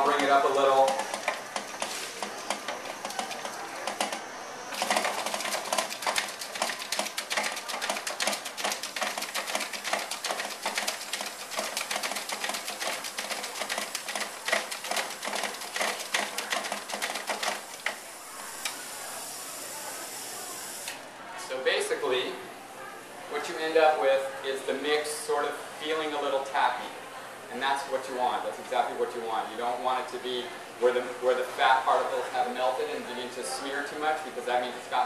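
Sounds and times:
stand mixer rattling clatter: 0.0 - 4.2, 4.8 - 18.0.

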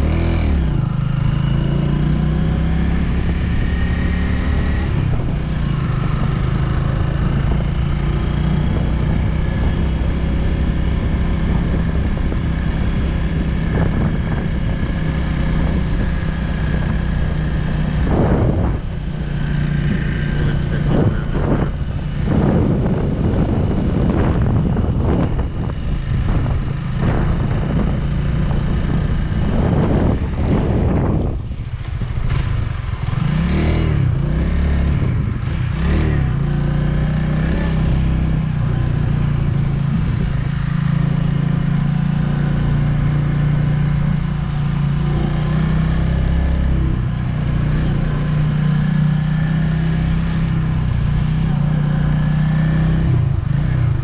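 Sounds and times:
motorcycle engine running: 0.0 - 54.0
wind noise on microphone: 0.0 - 54.0.

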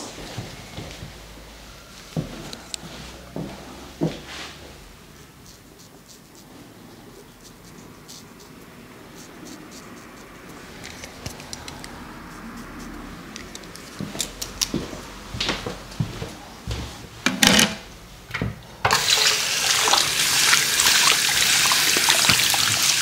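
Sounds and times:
razor scraping scalp: 5.4 - 14.6.

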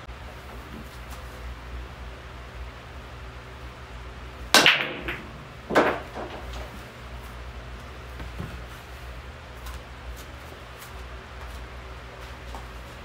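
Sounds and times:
fan hum: 0.0 - 13.0
cue ball cracking into rack: 4.5 - 6.8
pool balls clacking: 4.5 - 7.1
balls clicking as they scatter: 4.6 - 6.8.

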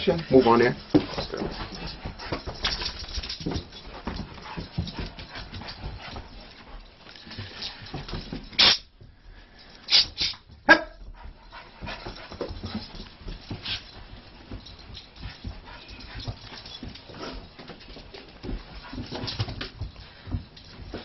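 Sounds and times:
faint shuffling: 0.0 - 21.0
dog barking: 10.6 - 11.0.

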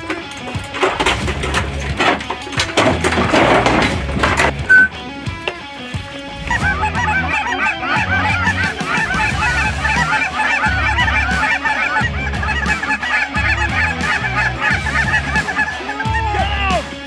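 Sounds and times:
low background music: 0.0 - 17.0
geese cackling in flight: 6.3 - 17.0.

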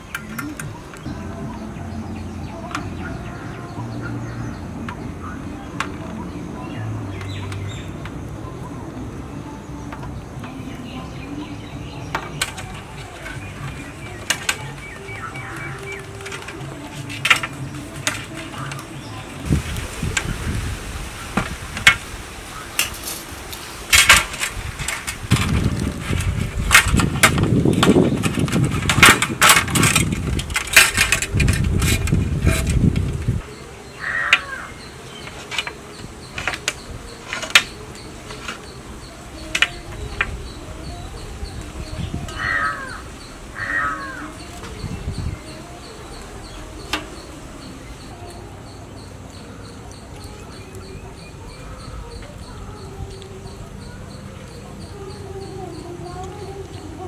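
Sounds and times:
faint insect drone: 0.0 - 57.0
sharp knocks and clatter: 23.9 - 32.8
crow cawing: 34.0 - 34.8, 42.3 - 44.3.

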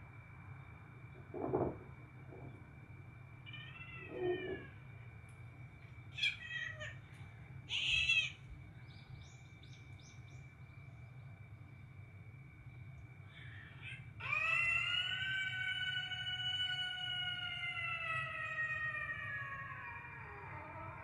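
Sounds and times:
cat meowing: 3.5 - 4.7, 6.2 - 7.0, 13.8 - 21.0.

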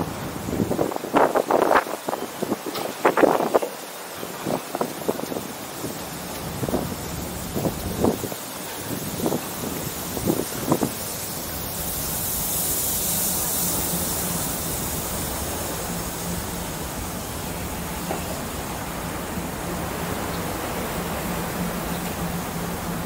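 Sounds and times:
wind on microphone: 0.0 - 11.2
open harbour ambience: 0.0 - 23.0.

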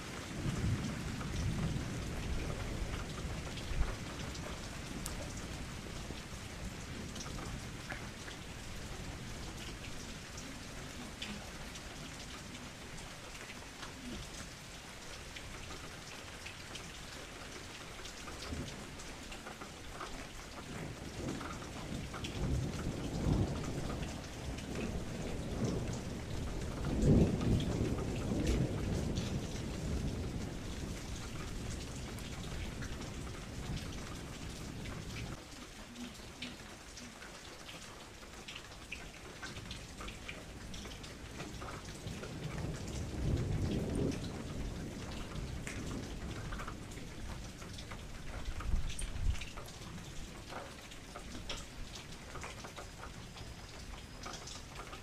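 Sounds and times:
low rolling thunder: 0.0 - 13.3, 20.6 - 35.4, 39.6 - 50.3
steady rain pattering: 0.0 - 55.0.

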